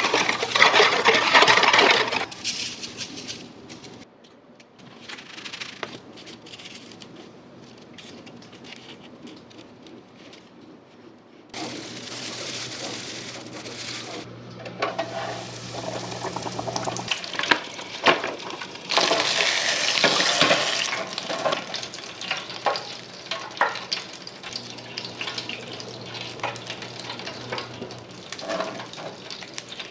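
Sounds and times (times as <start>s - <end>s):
fish deep frying in oil: 14.9s - 29.9s.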